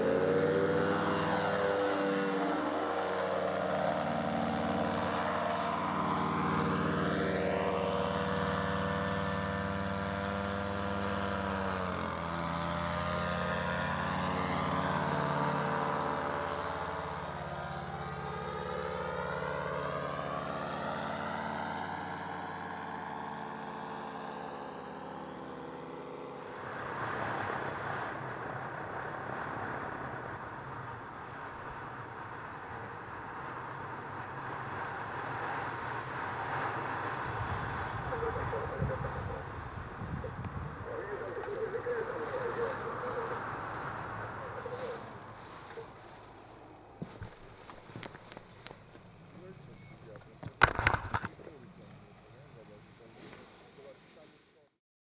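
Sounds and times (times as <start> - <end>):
paramotor engine running: 0.0 - 26.4, 36.4 - 53.8
rough noisy sound: 50.3 - 51.9.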